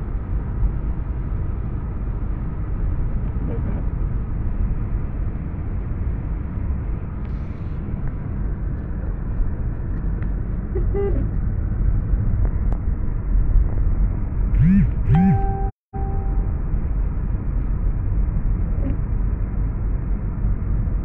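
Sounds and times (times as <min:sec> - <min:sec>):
car road and engine rumble: 0:00.0 - 0:14.7, 0:15.4 - 0:21.0
car horn toot: 0:14.6 - 0:16.4.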